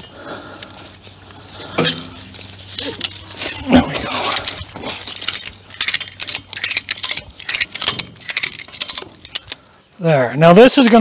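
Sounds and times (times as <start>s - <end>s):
ratchet strap clicking: 4.1s - 9.6s.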